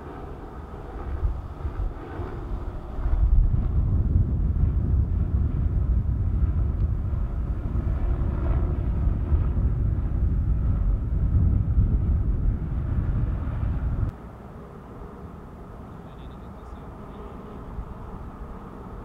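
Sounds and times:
loud low rumble: 0:03.1 - 0:14.1.

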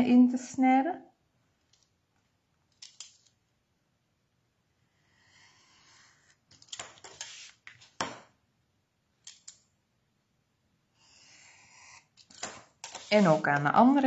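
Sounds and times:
craft knife scraping cardstock: 0:11.1 - 0:13.7.

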